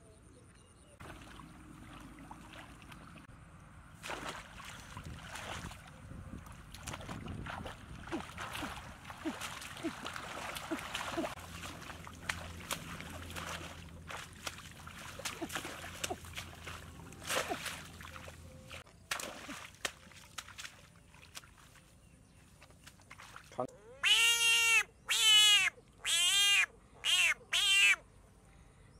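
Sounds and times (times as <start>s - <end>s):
hands splashing in shallow water: 1.0s - 3.3s, 4.0s - 21.9s, 22.6s - 23.5s.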